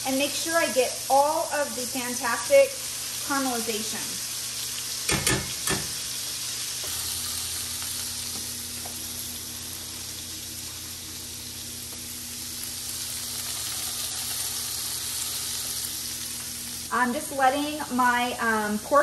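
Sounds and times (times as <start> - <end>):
patties sizzling in a skillet: 0.0 - 19.0.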